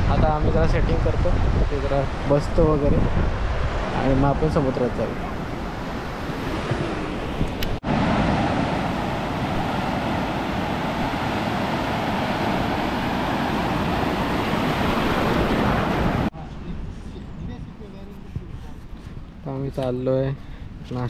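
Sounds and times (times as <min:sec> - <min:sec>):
sea waves and surf: 0:00.0 - 0:16.3.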